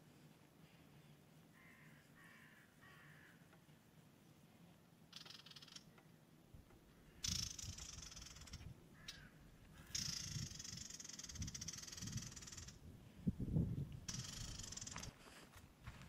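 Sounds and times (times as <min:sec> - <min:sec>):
rattling insect buzzing: 0:07.2 - 0:09.2, 0:09.9 - 0:12.8, 0:14.1 - 0:15.1.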